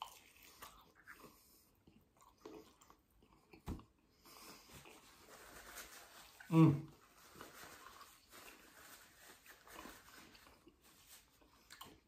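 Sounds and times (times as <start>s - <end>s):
chewing and mouth sounds: 0.0s - 5.1s, 9.8s - 12.0s.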